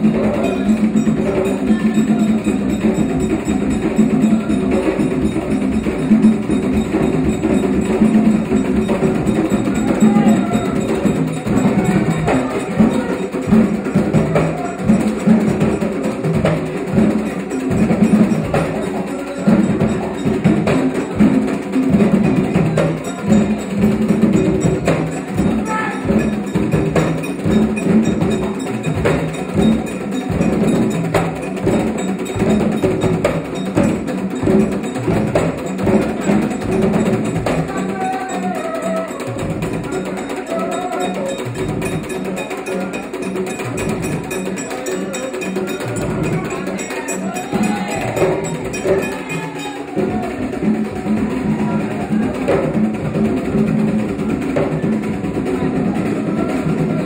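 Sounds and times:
struck metal bell ringing: 0:00.0 - 0:53.8
hand drums playing rhythm: 0:00.0 - 0:57.0.

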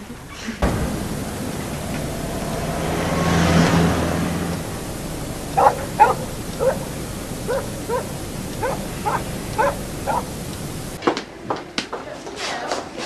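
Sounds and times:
background hiss: 0:00.0 - 0:11.0
dog barking: 0:05.5 - 0:10.5.

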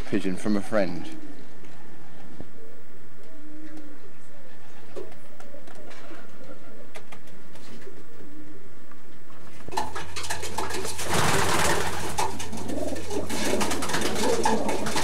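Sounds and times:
steady low hum: 0:00.0 - 0:09.8
pigeons cooing: 0:00.9 - 0:15.0.

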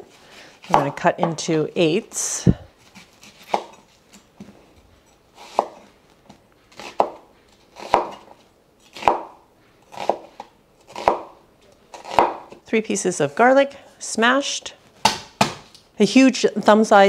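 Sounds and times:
knife cutting onion on board: 0:03.0 - 0:03.8, 0:05.4 - 0:05.9, 0:06.7 - 0:12.6.

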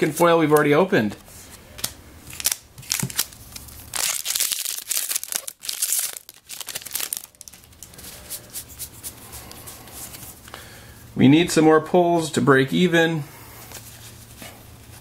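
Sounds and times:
foil wrapper crinkling and tearing: 0:01.8 - 0:08.6.

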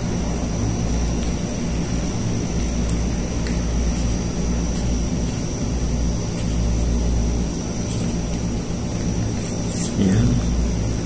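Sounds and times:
faint high-pitched whine: 0:00.0 - 0:11.0
low mechanical rumble: 0:00.0 - 0:11.0.

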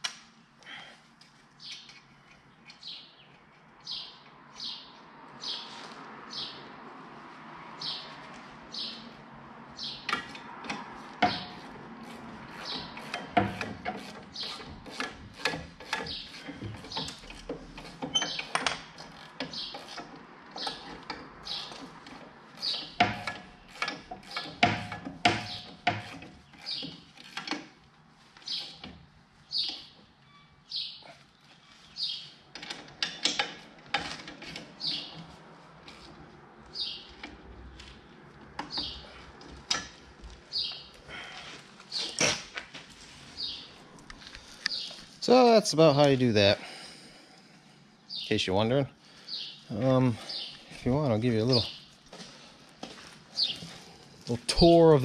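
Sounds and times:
wrench clicking on bolts: 0:12.5 - 0:27.7
small bird chirping: 0:44.5 - 0:45.0.

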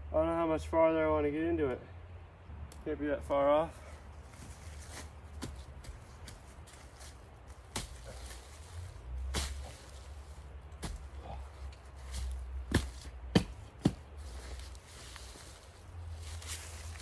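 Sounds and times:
shovel scraping into soil: 0:06.7 - 0:13.1.

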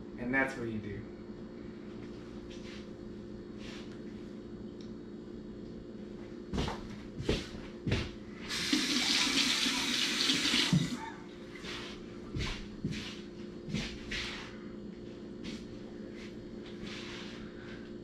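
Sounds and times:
steady low hum: 0:00.0 - 0:09.0, 0:09.7 - 0:18.0
kitchen tap running: 0:08.5 - 0:11.0.

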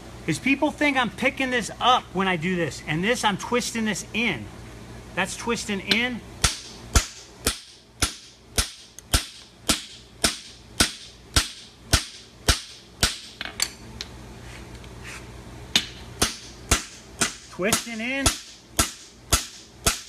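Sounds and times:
hammer striking steel: 0:05.9 - 0:13.4, 0:15.8 - 0:20.0.

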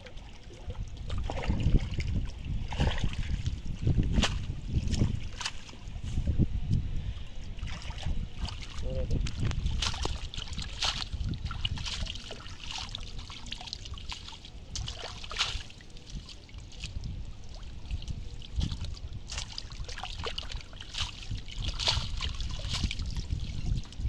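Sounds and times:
muddy water sloshing: 0:00.0 - 0:24.0
water dripping off weeds: 0:09.1 - 0:24.0.

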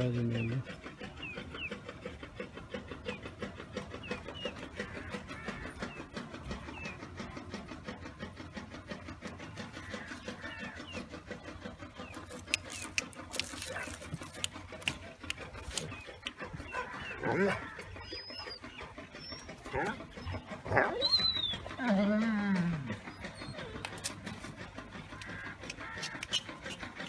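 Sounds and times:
small engine chugging: 0:00.0 - 0:27.0
bird chirps: 0:15.6 - 0:21.7.

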